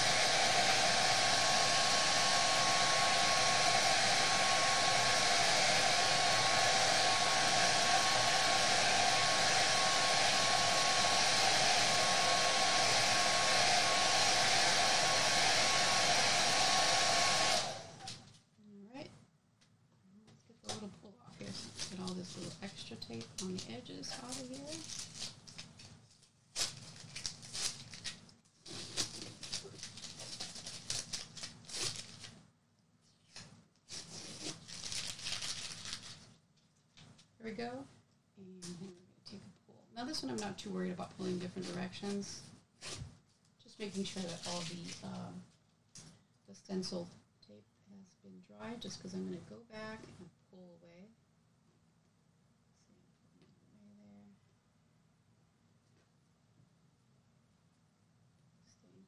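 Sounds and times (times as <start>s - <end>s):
hair dryer blowing: 0.0s - 18.2s, 40.0s - 43.0s, 43.8s - 45.4s
tape and paper peeling and crumpling: 24.1s - 32.4s, 33.3s - 36.3s.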